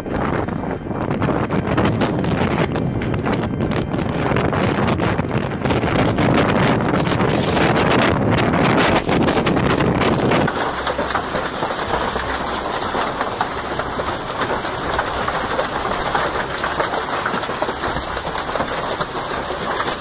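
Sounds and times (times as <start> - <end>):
wind buffeting microphone: 0.0 - 20.0
hail and heavy rain pelting: 10.2 - 20.0.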